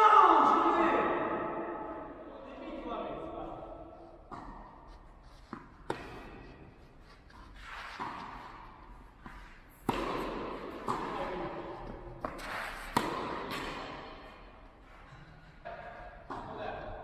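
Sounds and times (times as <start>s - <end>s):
tennis ball hit by rackets: 4.3s - 6.8s, 7.6s - 14.4s
tennis ball bouncing on clay: 5.5s - 6.5s, 9.2s - 13.9s.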